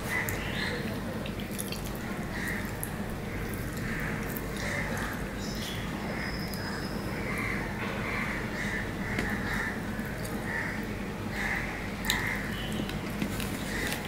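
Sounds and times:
wet chewing: 1.2s - 5.2s, 12.0s - 14.0s.

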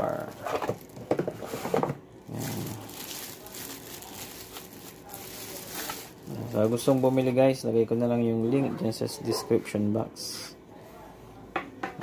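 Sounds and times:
plastic bag crinkling: 0.0s - 1.2s, 2.3s - 7.5s.

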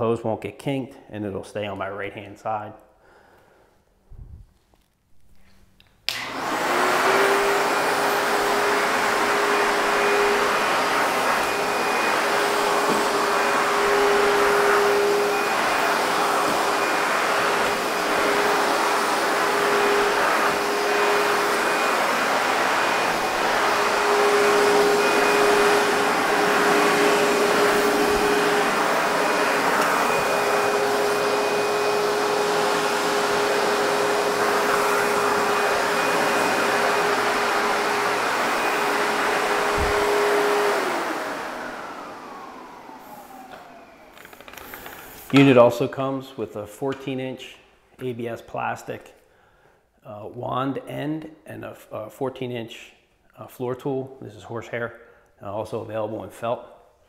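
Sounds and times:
vacuum cleaner running: 6.1s - 46.2s.

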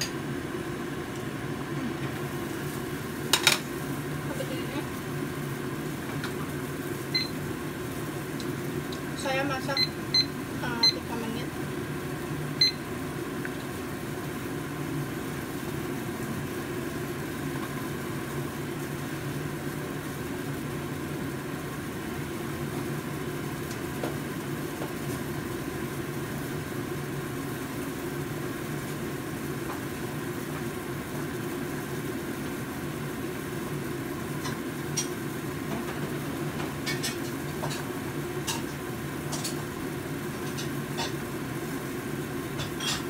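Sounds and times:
soup boiling on gas burner: 0.0s - 43.0s
kitchen timer beep: 7.1s - 7.4s, 9.6s - 11.2s, 12.6s - 12.8s.

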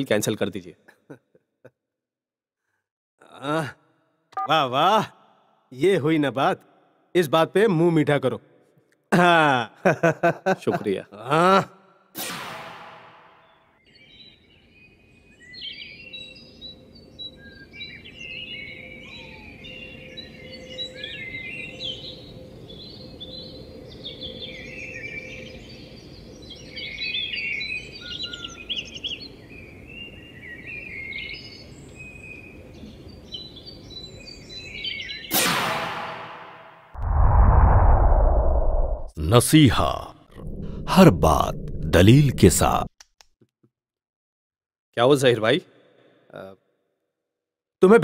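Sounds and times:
small birds chirping: 13.4s - 35.3s
loud whoosh: 37.0s - 39.2s, 40.3s - 42.6s.

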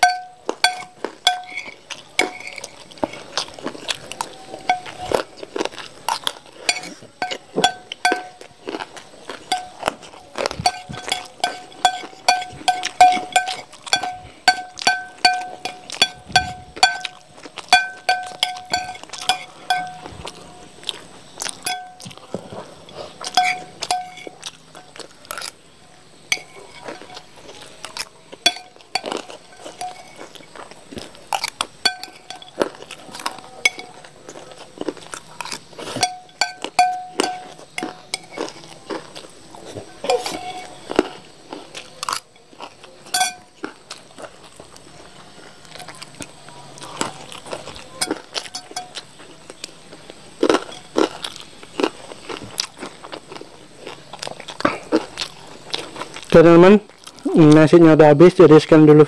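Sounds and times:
metal spoon clinking on plate: 0.0s - 5.2s, 6.1s - 8.5s, 9.4s - 25.6s, 26.3s - 30.6s, 31.2s - 34.1s, 35.2s - 38.7s, 40.0s - 40.8s, 43.1s - 43.5s, 47.6s - 49.2s, 50.5s - 51.2s
chewing and crunching: 0.0s - 59.0s.

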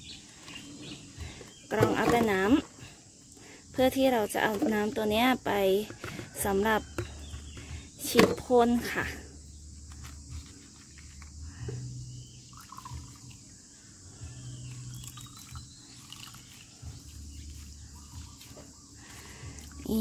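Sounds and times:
faint chirps: 9.2s - 20.0s
liquid trickling into plastic cup: 12.5s - 13.4s, 14.9s - 16.7s.

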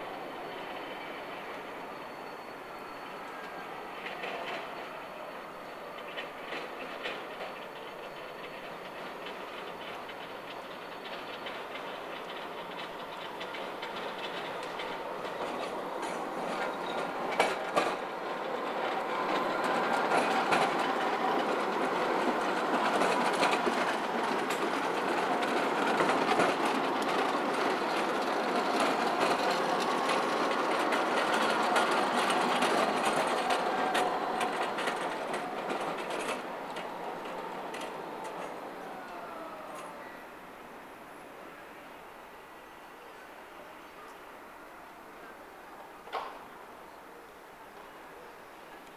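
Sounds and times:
tram wheels rumbling on rail: 0.0s - 48.9s
sharp clacks of tram wheels: 5.9s - 40.0s, 46.0s - 46.6s.

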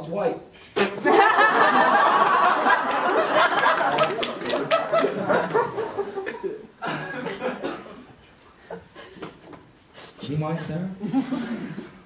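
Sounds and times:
audience laughing: 1.0s - 7.8s.

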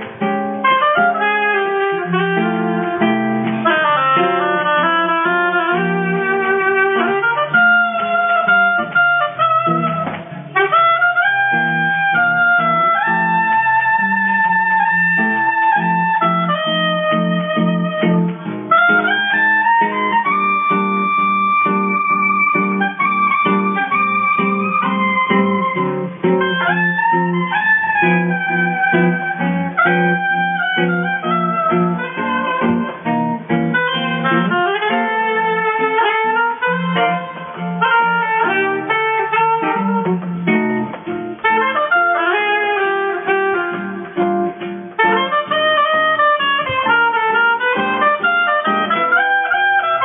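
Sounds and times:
acoustic guitar accompaniment: 0.0s - 50.0s
oboe melody: 0.0s - 50.0s.

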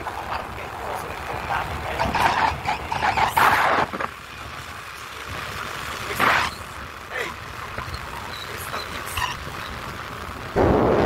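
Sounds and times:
man talking: 0.0s - 2.4s, 6.0s - 7.4s
moving vehicle noise: 0.0s - 11.0s.

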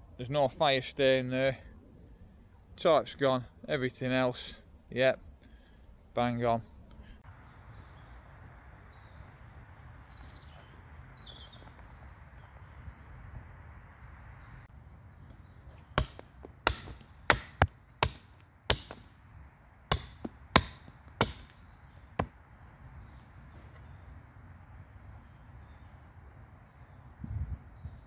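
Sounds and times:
axe chopping wood: 15.8s - 19.2s, 19.9s - 22.4s.

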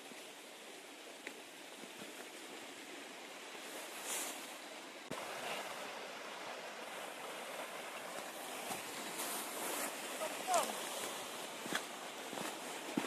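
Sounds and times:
mountain stream rushing: 0.0s - 13.0s.

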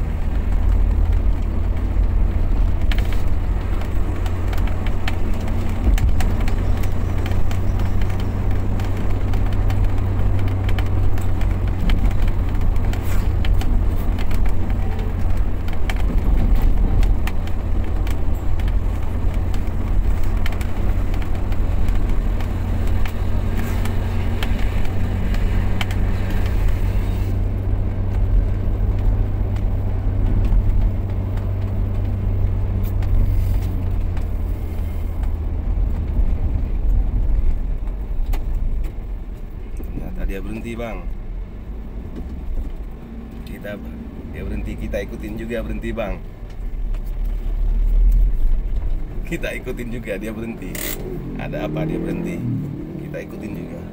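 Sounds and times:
car engine rumble from inside: 0.0s - 53.9s
tyres on asphalt: 0.0s - 53.9s
light ticks and rattles: 0.2s - 26.8s.

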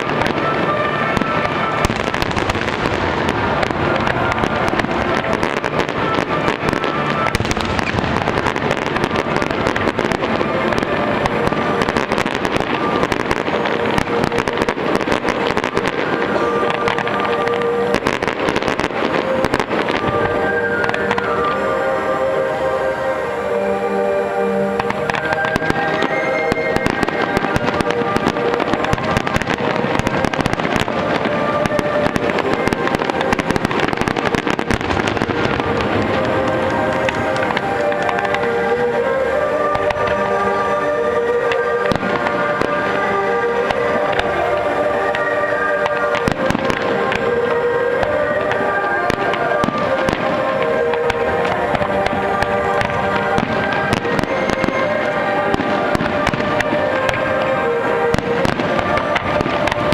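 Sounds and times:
fireworks crackling and popping: 0.0s - 59.9s
music playing: 0.0s - 59.9s.

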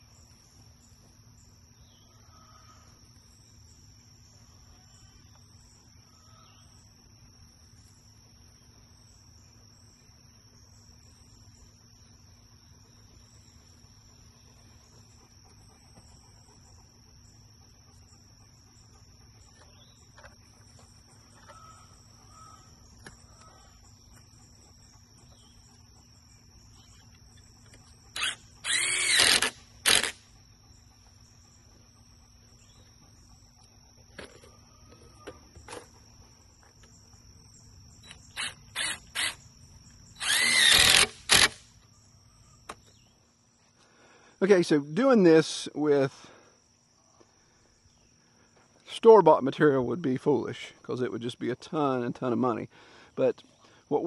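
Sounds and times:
faint insect chirring: 0.0s - 54.0s
cordless drill driving screw: 28.1s - 30.2s, 38.1s - 39.4s, 40.2s - 41.6s.

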